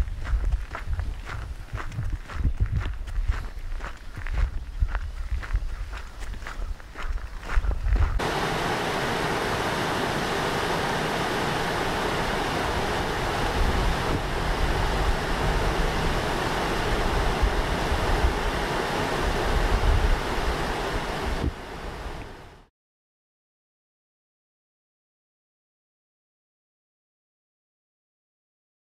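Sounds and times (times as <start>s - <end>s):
wind buffeting microphone: 0.0s - 22.5s
stream rushing over rocks: 8.2s - 22.6s.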